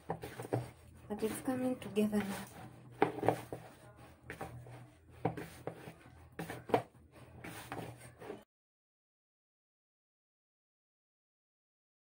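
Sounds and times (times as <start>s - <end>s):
hands kneading dough in a bowl: 0.0s - 8.5s.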